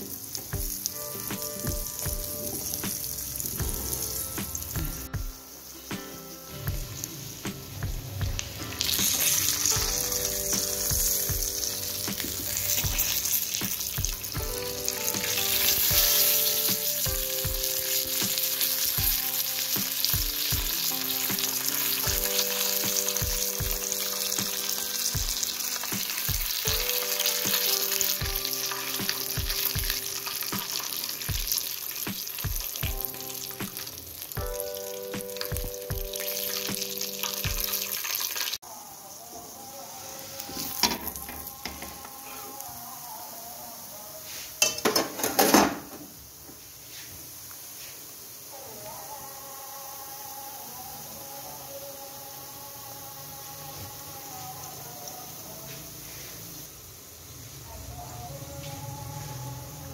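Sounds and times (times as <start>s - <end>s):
background music with beat: 0.0s - 38.6s
flatbread sizzling on griddle: 0.0s - 59.9s.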